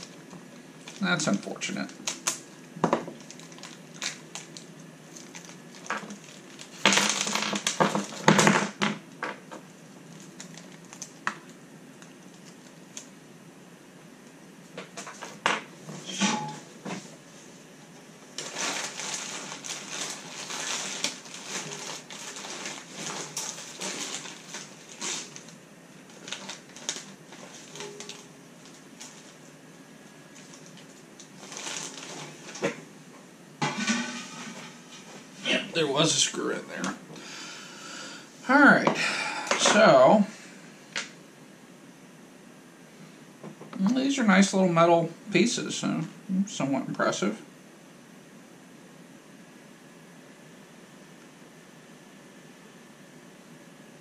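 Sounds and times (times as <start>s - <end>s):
plastic bags crinkling: 0.0s - 8.4s, 10.0s - 13.1s, 18.3s - 32.8s.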